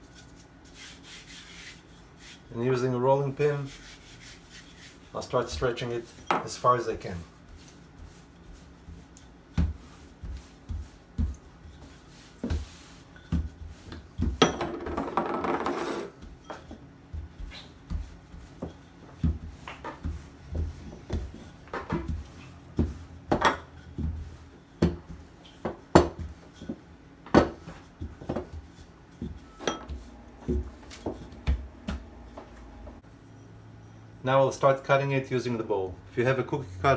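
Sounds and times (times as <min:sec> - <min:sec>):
rolling pin rubbing: 0:00.0 - 0:02.5, 0:03.5 - 0:05.2, 0:15.2 - 0:16.7.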